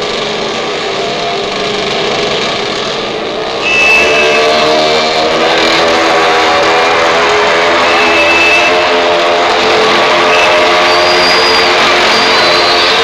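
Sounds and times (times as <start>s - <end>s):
small motorcycle engine running: 0.0s - 13.0s.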